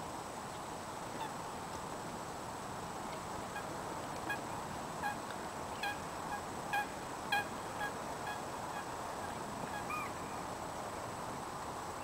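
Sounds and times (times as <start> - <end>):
geese honking: 5.8 - 10.3.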